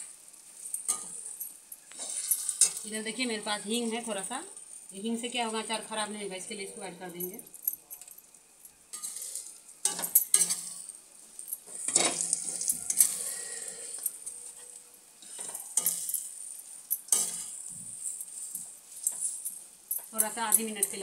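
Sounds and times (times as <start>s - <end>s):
mixture sizzling in oil: 0.0s - 7.0s, 8.2s - 21.0s
spoon scraping metal pan: 1.9s - 2.9s, 8.9s - 10.9s, 11.7s - 16.5s, 17.1s - 21.0s.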